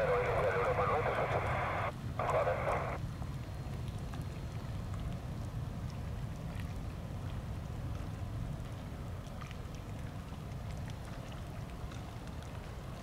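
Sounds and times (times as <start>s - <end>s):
radio voice: 0.0s - 3.0s.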